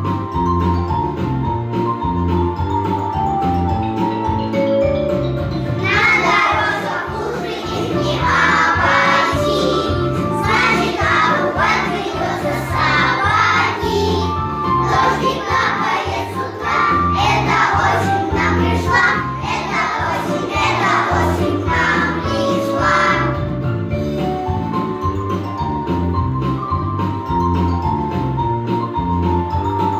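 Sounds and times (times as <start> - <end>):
instrumental accompaniment with bass: 0.0 - 29.9
children singing: 5.8 - 23.4.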